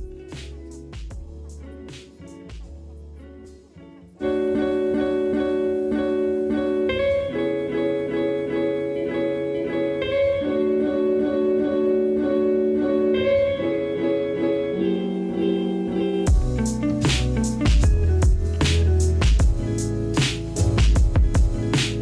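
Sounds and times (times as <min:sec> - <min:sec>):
heavy bass and drum hits: 0:00.0 - 0:01.6, 0:16.3 - 0:22.0
plucked guitar chords: 0:00.0 - 0:22.0.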